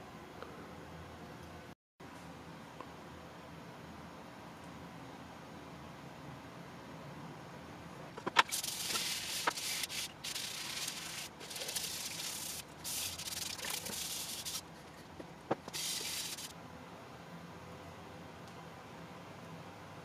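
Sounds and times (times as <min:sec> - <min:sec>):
brush scrubbing knife blade: 0:08.2 - 0:14.7, 0:15.5 - 0:16.5.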